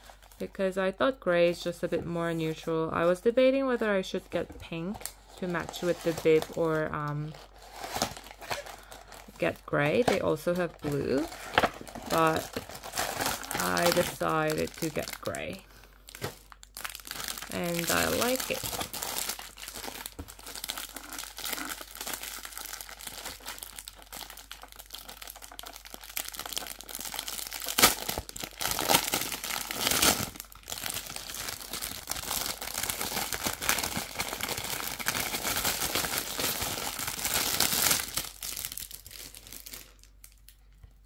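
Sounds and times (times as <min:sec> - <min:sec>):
plastic bag crinkling: 0:05.0 - 0:40.7.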